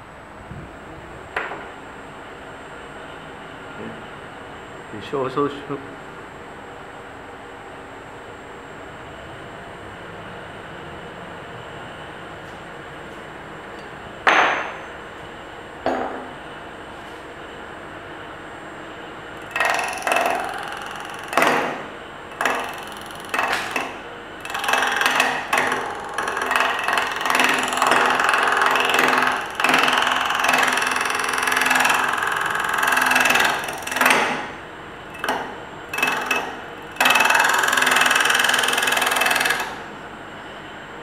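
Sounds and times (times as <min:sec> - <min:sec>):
turning tool cutting wood: 0:19.4 - 0:39.9
wood lathe running: 0:19.4 - 0:39.9.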